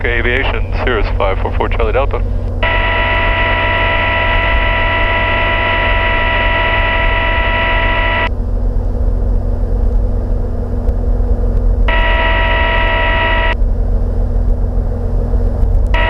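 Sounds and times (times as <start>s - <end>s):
airplane engine and propeller drone: 0.0s - 16.0s
high electronic tone: 2.6s - 8.3s, 11.9s - 13.6s.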